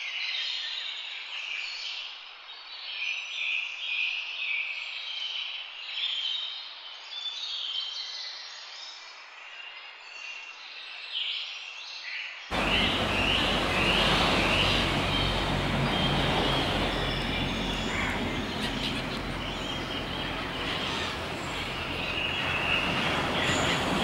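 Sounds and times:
short bird calls: 12.5s - 24.0s
surf breaking on a beach: 12.5s - 24.0s
terns and gulls calling: 12.5s - 24.0s.

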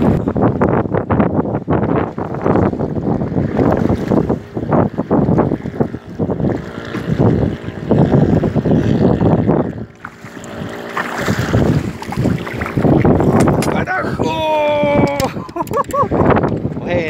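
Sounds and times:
wind buffeting microphone: 0.0s - 17.0s
fish splashing in water: 9.8s - 13.6s.

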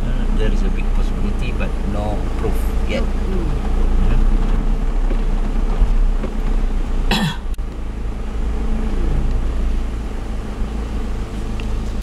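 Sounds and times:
car engine and road rumble: 0.0s - 12.0s
person coughing: 7.1s - 7.4s.

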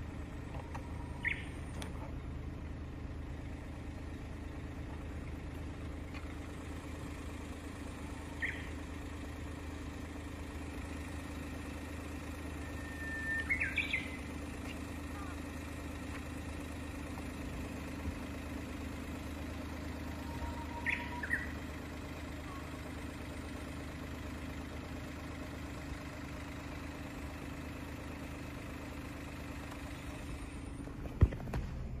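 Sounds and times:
car engine idling: 0.0s - 32.0s
bird chirps: 1.0s - 1.6s, 8.3s - 8.8s, 12.6s - 14.9s, 20.2s - 21.7s.

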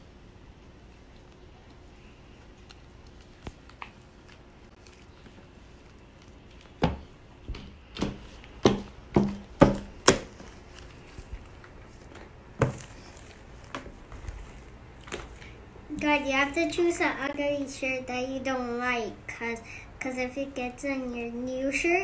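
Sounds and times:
hands slapping slime: 6.6s - 10.6s.

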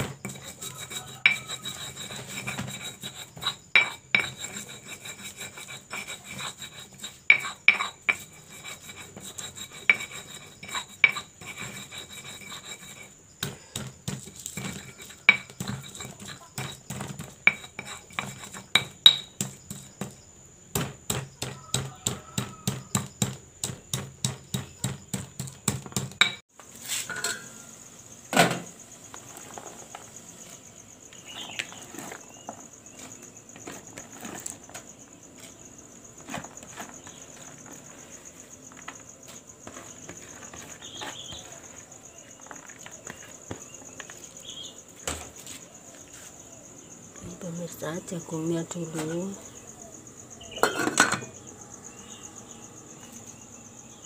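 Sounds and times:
stone pestle pounding in mortar: 0.0s - 26.4s
insect chirring: 0.0s - 54.0s.

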